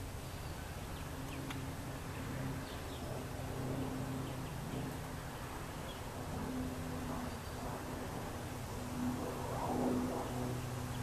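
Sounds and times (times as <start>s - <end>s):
steady low droning hum: 0.0s - 11.0s.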